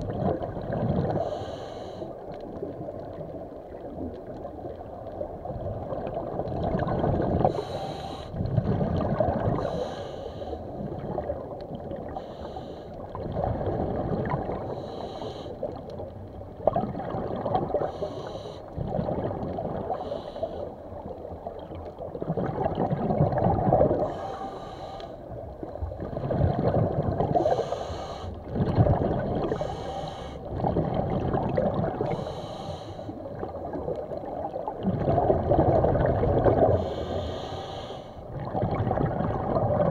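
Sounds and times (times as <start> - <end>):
muffled water sloshing: 0.0 - 39.9
swimmer breathing underwater: 1.1 - 2.2, 7.4 - 8.4, 9.5 - 10.8, 12.1 - 13.0, 14.6 - 15.7, 17.7 - 18.7, 19.8 - 20.8, 23.9 - 25.3, 27.4 - 28.4, 29.4 - 30.5, 32.0 - 33.2, 36.6 - 38.3.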